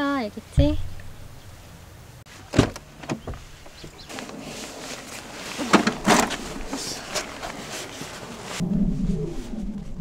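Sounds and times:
bumps and scraping: 0:00.5 - 0:01.7, 0:02.3 - 0:10.0
sharp knocks: 0:00.6 - 0:01.4
rustling of bagged tent: 0:03.4 - 0:10.0.

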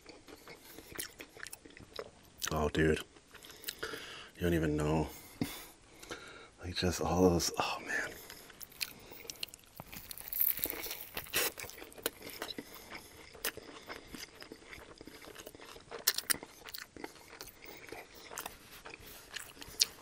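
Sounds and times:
chewing and mouth clicks: 0:00.0 - 0:02.6, 0:03.2 - 0:04.0, 0:08.1 - 0:20.0
crunchy sandwich bites: 0:08.3 - 0:20.0.

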